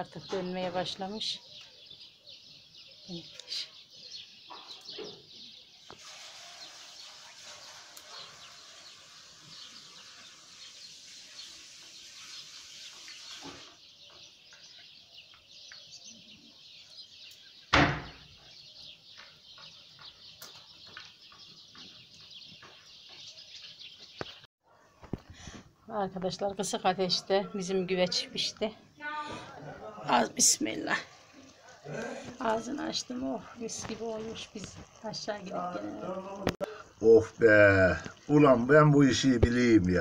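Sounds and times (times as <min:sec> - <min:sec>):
small birds chirping: 0:00.0 - 0:40.0
soft outdoor hiss: 0:05.3 - 0:17.8, 0:28.0 - 0:40.0
loud thump: 0:17.7 - 0:18.2.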